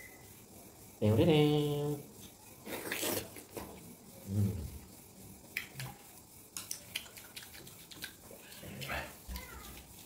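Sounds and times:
chewing watermelon: 2.6s - 3.9s, 6.6s - 10.0s.

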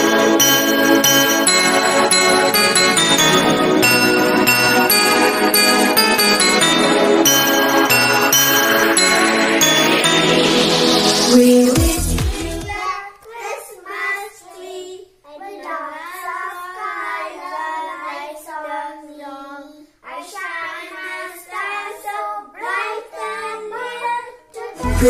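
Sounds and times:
children singing: 0.0s - 12.9s, 20.3s - 25.0s.

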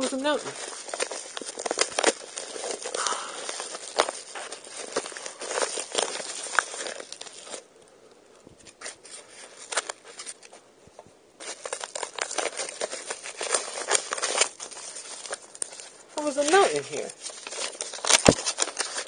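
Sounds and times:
paper envelope crinkling and tearing: 0.0s - 7.7s, 8.7s - 10.6s, 11.4s - 19.0s.

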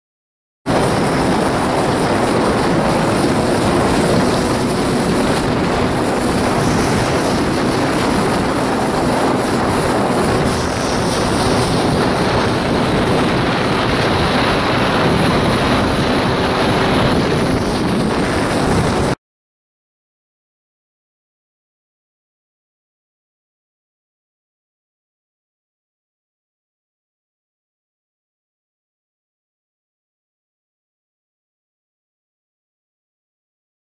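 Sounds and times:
jet ski engine running: 0.7s - 19.2s
rush of wind and water: 0.7s - 19.2s.

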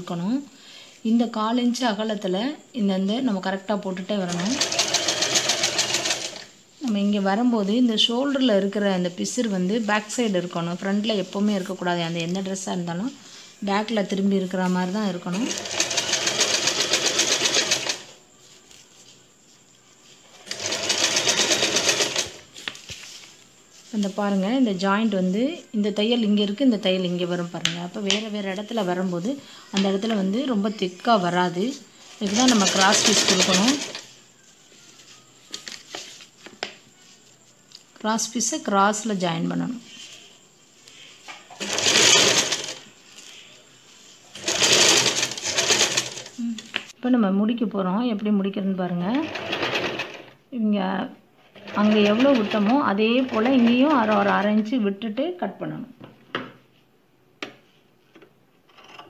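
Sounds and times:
sewing machine stitching: 4.2s - 6.5s, 15.3s - 18.1s, 20.4s - 22.4s, 32.2s - 34.0s, 41.5s - 42.8s, 44.3s - 46.4s, 49.2s - 50.4s, 51.5s - 54.7s.

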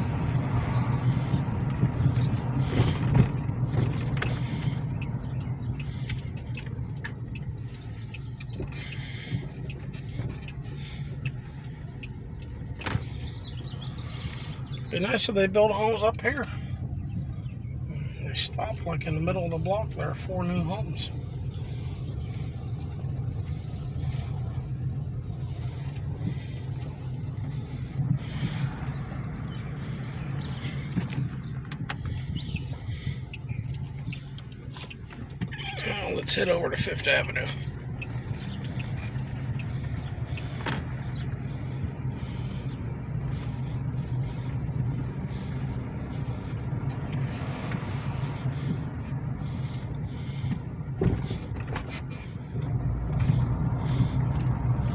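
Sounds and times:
car engine rumble: 0.0s - 54.9s
tyre noise: 0.7s - 11.4s.

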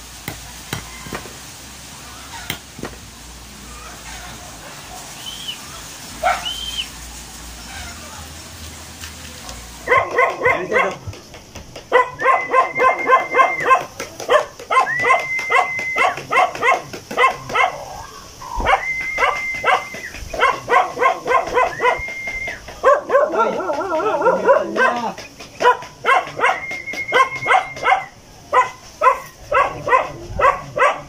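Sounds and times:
dog barking rapidly: 6.2s - 6.6s, 9.8s - 11.2s, 11.9s - 18.0s, 18.6s - 22.1s, 22.8s - 31.0s
dog whining: 6.2s - 6.7s, 11.9s - 31.0s
dog whimpering: 12.0s - 13.8s.

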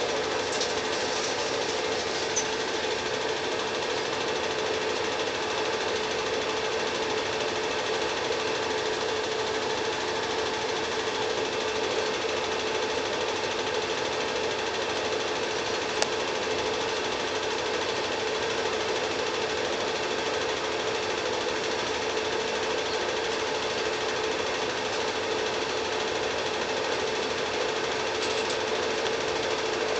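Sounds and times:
film projector whirring: 0.0s - 29.9s.

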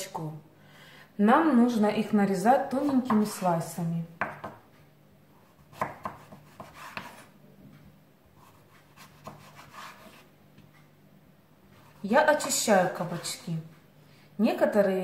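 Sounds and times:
knife cutting on wooden board: 5.5s - 7.3s, 8.4s - 10.3s.

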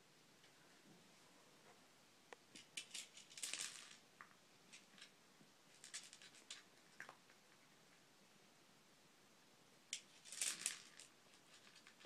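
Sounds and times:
plastic puzzle feeder rattling: 2.6s - 4.0s, 5.7s - 7.2s, 10.0s - 12.0s.

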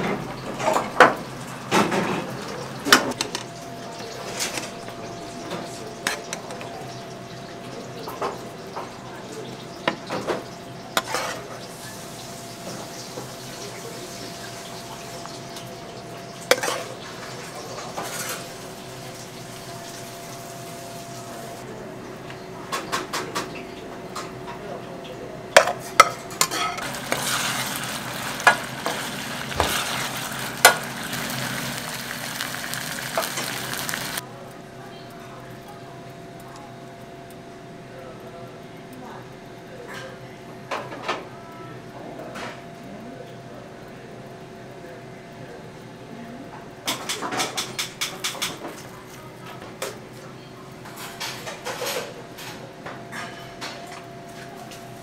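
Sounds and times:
kitchen background noise: 0.0s - 55.0s
sauce bubbling and sizzling: 6.0s - 21.7s, 26.8s - 34.2s
metal ladle scraping frying pan: 11.0s - 11.4s, 26.5s - 34.2s.

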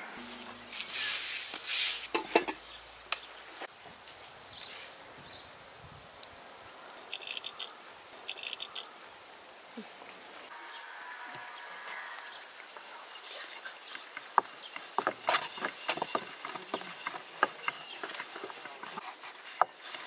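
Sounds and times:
metal saucepan clanking: 2.1s - 2.6s.

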